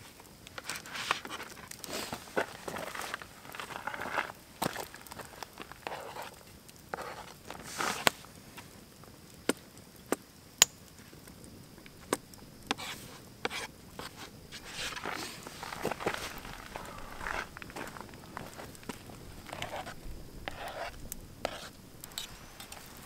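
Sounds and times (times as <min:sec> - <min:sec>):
scraping and rustling: 0:11.9 - 0:23.0.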